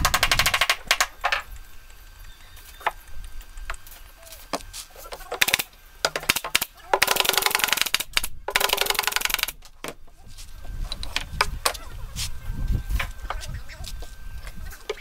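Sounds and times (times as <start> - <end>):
nail gun firing into plywood: 5.4 - 9.6.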